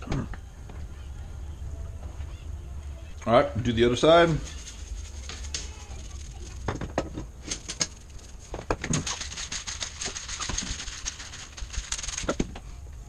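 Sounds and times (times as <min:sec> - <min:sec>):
shaking and grinding seasoning: 0:03.9 - 0:12.5.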